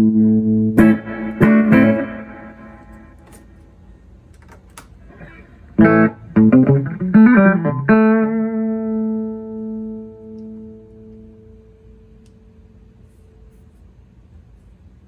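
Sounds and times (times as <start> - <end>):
electric guitar notes and chords: 0.0 - 3.6, 5.1 - 12.4.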